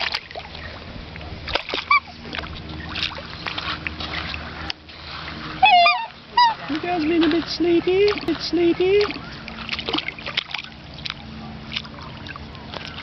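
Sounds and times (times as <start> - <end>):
water splashing and sloshing: 0.0 - 13.0
swan call: 1.7 - 2.2, 5.6 - 6.8.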